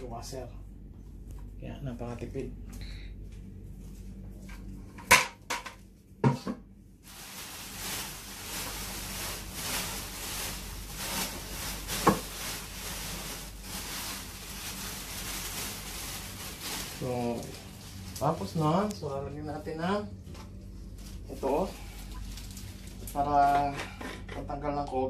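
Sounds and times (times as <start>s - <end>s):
plastic sheeting rustling: 7.0s - 20.1s, 20.7s - 23.6s.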